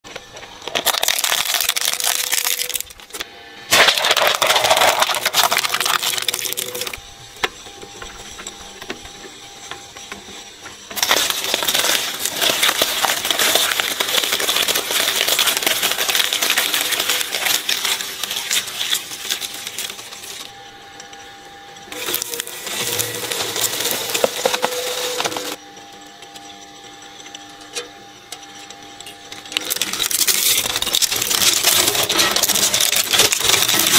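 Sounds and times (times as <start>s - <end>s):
shredder motor hum: 0.1s - 33.9s
shredder blades crunching objects: 0.6s - 7.0s, 10.9s - 20.5s, 21.9s - 25.6s, 29.5s - 33.9s.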